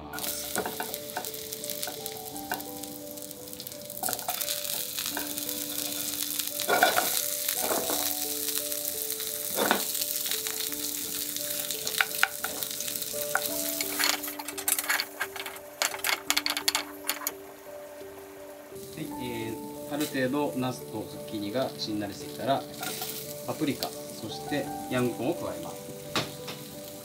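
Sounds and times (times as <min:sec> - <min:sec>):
soft background music: 0:00.0 - 0:27.0
vegetables sizzling in a frying pan: 0:00.0 - 0:27.0.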